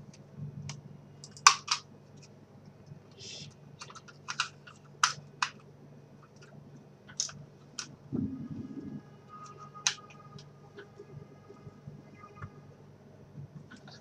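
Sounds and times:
faint low hum: 0.0s - 14.0s
muffled low bump: 8.1s - 9.0s.

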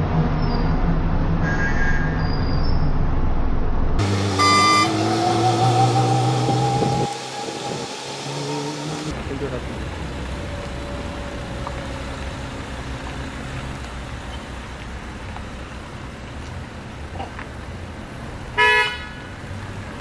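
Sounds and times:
car horn honk: 4.0s - 7.6s, 18.6s - 19.3s
car engines running low: 4.0s - 18.6s.

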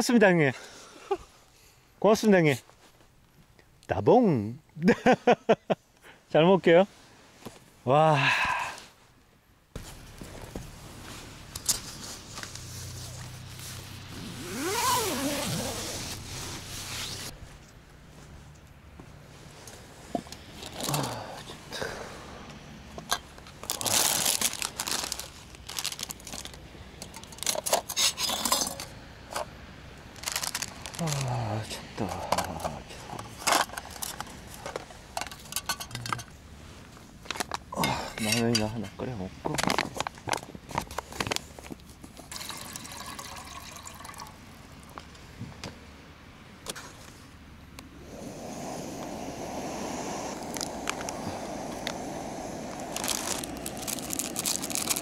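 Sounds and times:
man's wordless exclamation: 7.9s - 8.8s, 31.0s - 32.7s.

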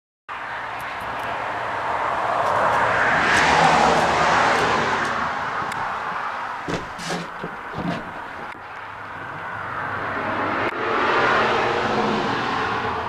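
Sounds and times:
vehicle passing by: 0.5s - 6.6s, 8.8s - 13.0s.

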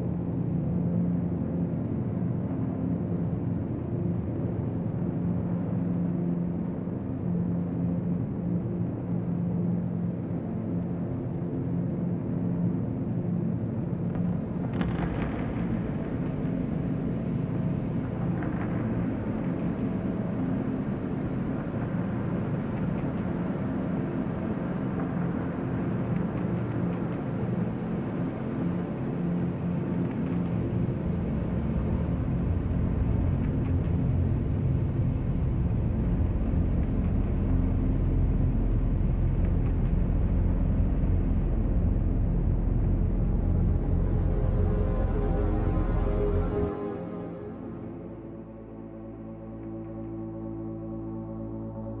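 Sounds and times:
low rumbling ambient drone: 0.0s - 52.0s
low droning rumble: 31.4s - 48.8s
faint wavering humming tones: 40.0s - 52.0s.

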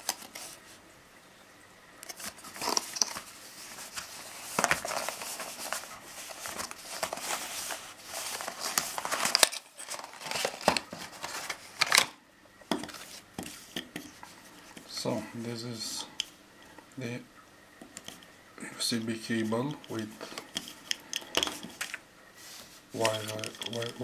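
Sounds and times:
cardboard box rustling and scraping: 2.2s - 11.9s.

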